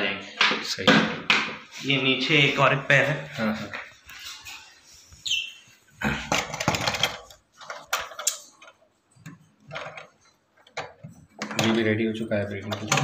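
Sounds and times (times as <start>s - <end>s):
parrots chirping: 4.7s - 5.9s.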